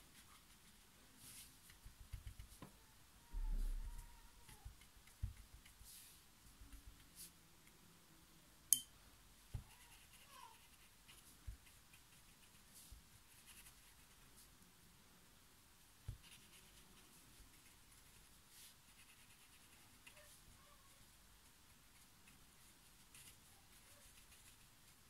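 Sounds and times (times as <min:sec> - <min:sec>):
paintbrush swishing on paper: 0:00.0 - 0:02.6, 0:05.2 - 0:07.4, 0:09.6 - 0:14.5, 0:16.1 - 0:25.0.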